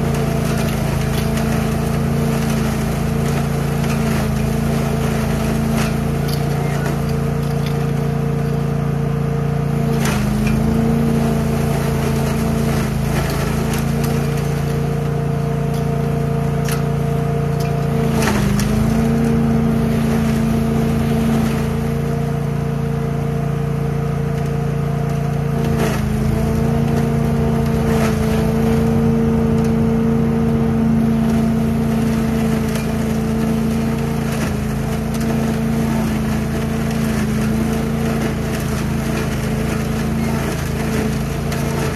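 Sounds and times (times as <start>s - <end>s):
leaves crackling through hose: 0.0s - 8.5s, 17.9s - 22.8s, 24.8s - 41.9s
leaf vacuum running: 0.0s - 41.9s.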